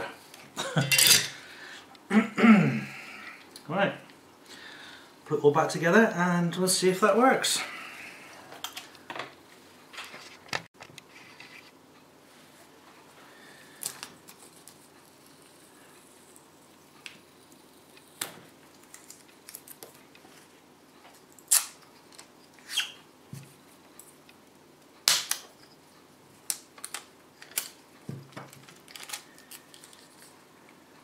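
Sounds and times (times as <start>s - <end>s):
small parts clicking and scraping: 28.4s - 30.4s.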